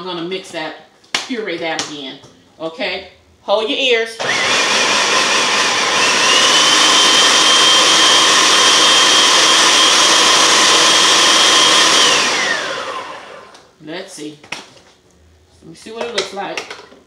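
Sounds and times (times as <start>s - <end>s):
food processor motor whining: 4.2s - 13.7s.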